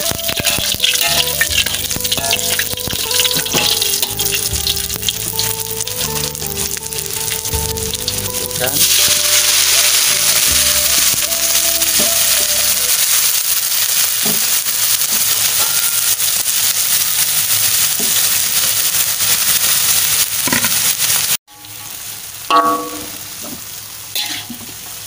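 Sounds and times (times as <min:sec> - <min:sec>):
spatula clanking on wok: 0:00.0 - 0:05.6, 0:22.5 - 0:23.6, 0:24.2 - 0:24.8
vegetables sizzling in oil: 0:00.0 - 0:25.0.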